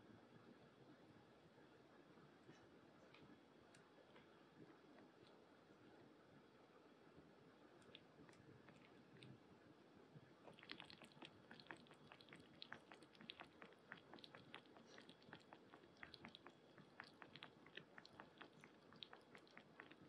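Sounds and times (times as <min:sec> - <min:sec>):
kitten lapping water: 0:10.4 - 0:20.0.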